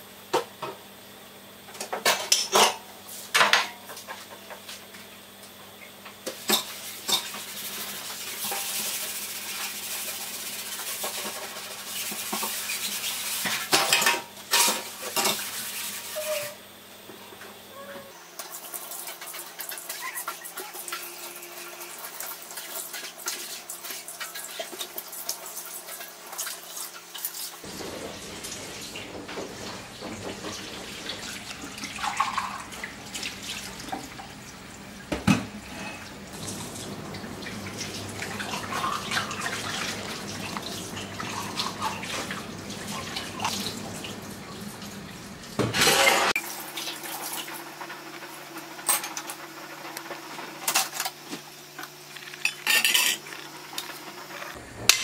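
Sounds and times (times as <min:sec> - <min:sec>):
dishes clinking: 0:52.4 - 0:53.3.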